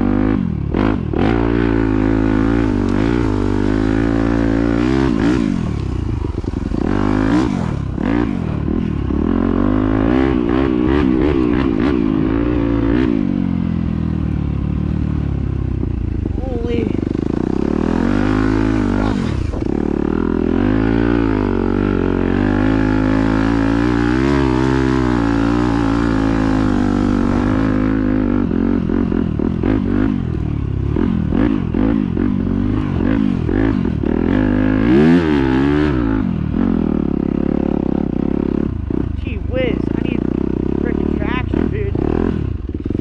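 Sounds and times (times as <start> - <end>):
dirt bike engine revving: 0.0 - 43.0.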